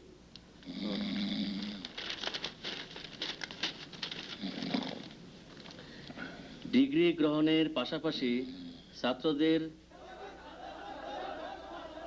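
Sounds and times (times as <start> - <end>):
man snoring: 0.6 - 1.8
rapid crackling clicks: 1.6 - 6.1.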